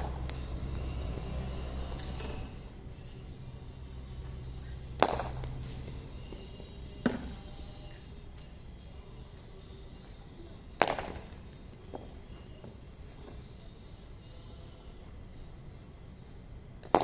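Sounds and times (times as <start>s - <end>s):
cricket ball striking bat: 4.4s - 6.4s, 7.0s - 7.5s, 10.8s - 12.1s, 16.8s - 17.0s.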